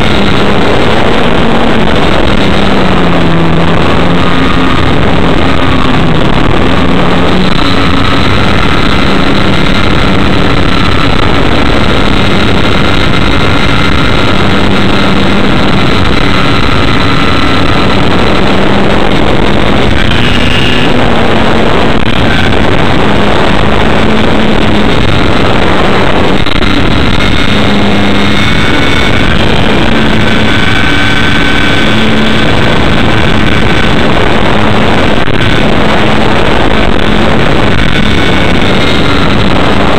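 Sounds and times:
wind rushing over microphone: 0.0 - 39.9
model airplane motor drone: 19.5 - 25.0.

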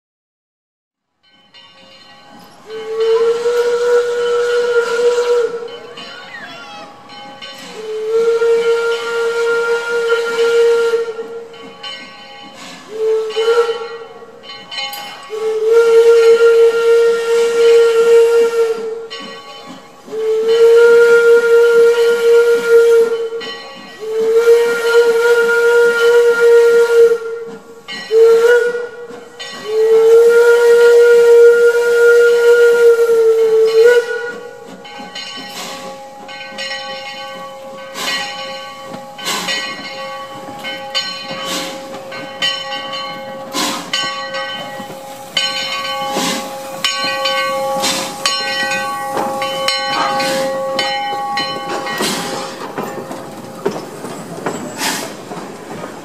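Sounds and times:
steam hissing: 1.8 - 56.0
steam locomotive whistle blasts: 2.6 - 7.0, 7.6 - 11.5, 12.8 - 14.3, 15.0 - 19.4, 20.0 - 34.8, 44.7 - 52.8
locomotive knocks and chuffs: 34.4 - 56.0.

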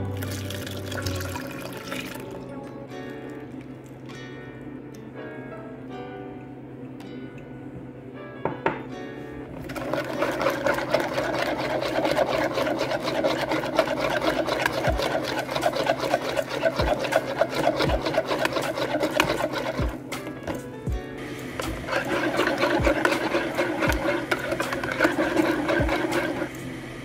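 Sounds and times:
whisk scraping and clinking in bowl: 9.6 - 20.6, 21.6 - 26.6.

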